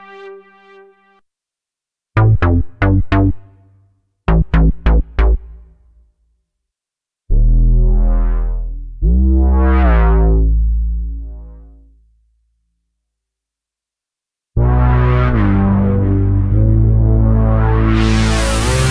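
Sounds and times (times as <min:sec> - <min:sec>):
synthesizer bass notes: 0:02.2 - 0:03.7, 0:04.3 - 0:05.9, 0:07.3 - 0:11.9, 0:14.6 - 0:18.9.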